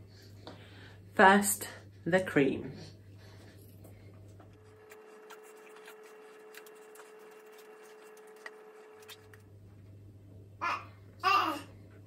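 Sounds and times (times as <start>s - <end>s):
spatula scraping glass bowl: 4.6s - 9.4s.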